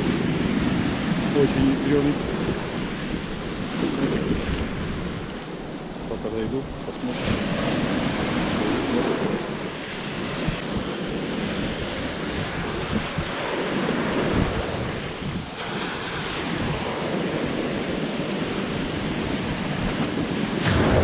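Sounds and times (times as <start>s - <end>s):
wind buffeting microphone: 0.0s - 21.0s
surf breaking into foam: 20.5s - 21.0s.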